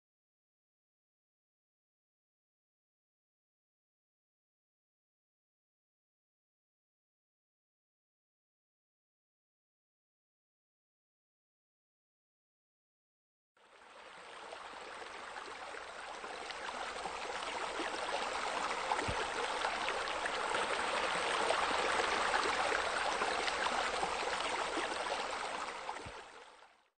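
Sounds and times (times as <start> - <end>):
stream water rushing: 13.8 - 26.4.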